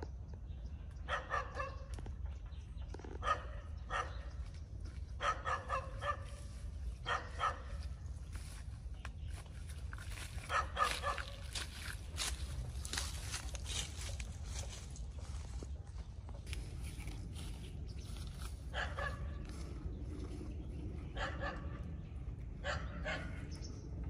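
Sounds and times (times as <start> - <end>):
dog barking: 1.0 - 1.9, 3.2 - 4.3, 5.2 - 6.4, 7.0 - 7.8, 10.4 - 11.5, 18.7 - 19.4, 21.2 - 21.9, 22.6 - 23.4.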